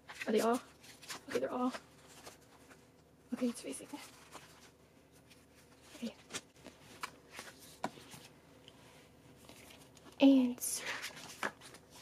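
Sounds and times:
cards being shuffled: 0.0 - 2.8, 3.4 - 8.3, 10.8 - 12.0
thick album pages turned: 0.0 - 8.4, 9.3 - 10.2, 10.8 - 12.0.

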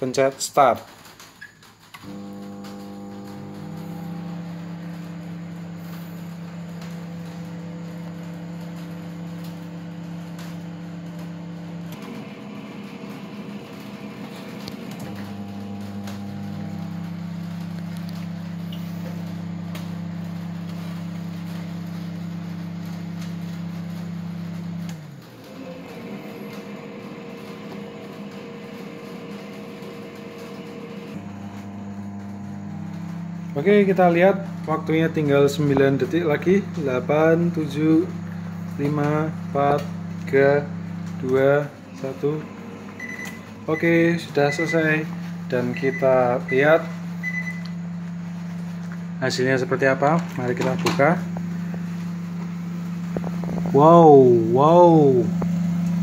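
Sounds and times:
microwave oven humming: 0.0 - 56.0.

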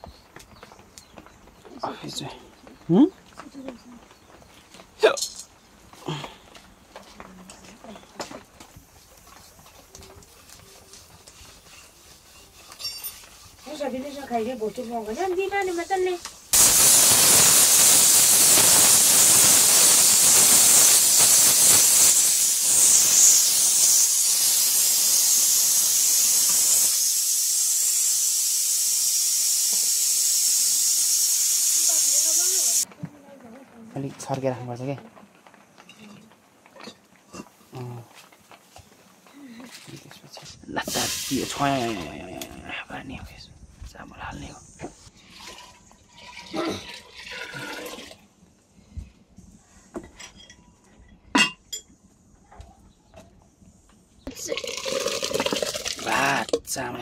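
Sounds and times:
food hissing in a pot: 10.2 - 32.9, 40.8 - 42.1, 54.5 - 56.5
water pouring into pot: 45.2 - 48.2, 54.3 - 56.6.

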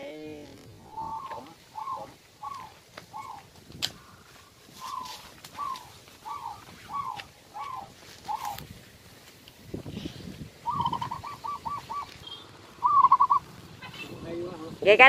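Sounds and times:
bird calling: 0.8 - 8.7, 10.6 - 14.2.

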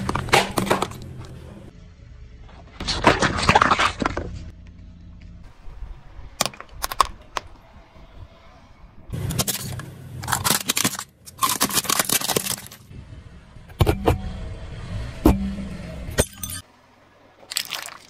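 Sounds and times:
plastic toys cracking under tyre: 6.4 - 7.6, 9.3 - 12.9, 17.5 - 18.0.

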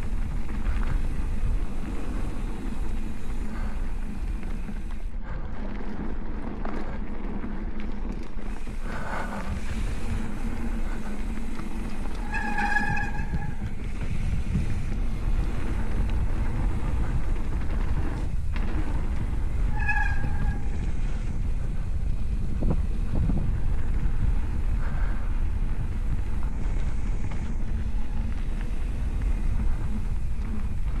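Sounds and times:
bike tyres rolling on dirt: 0.0 - 31.0
wind on microphone: 8.0 - 31.0
disc brake squeal: 12.2 - 13.6.

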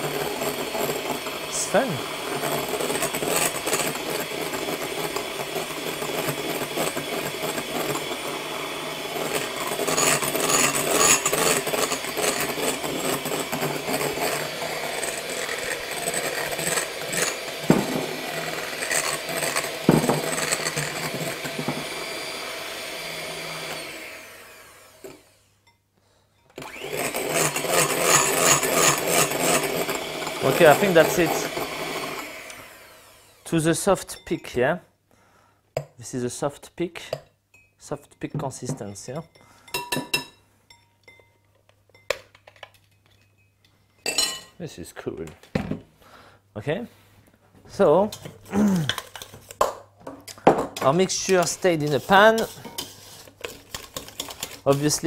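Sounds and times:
electric hand mixer whirring: 0.0 - 25.5, 26.6 - 33.7, 50.8 - 55.0.

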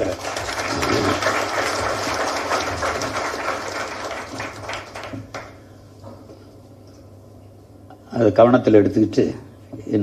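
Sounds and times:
audience applauding: 0.0 - 5.6.

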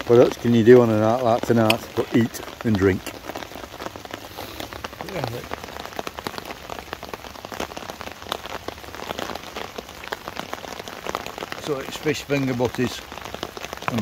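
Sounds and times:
heavy rain on a tarp: 0.0 - 14.0.

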